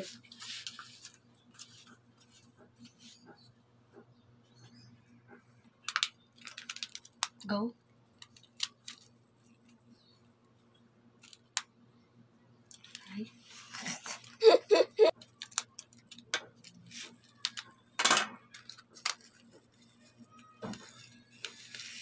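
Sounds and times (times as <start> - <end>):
sharp plastic crackles: 5.8 - 9.8, 15.2 - 19.6.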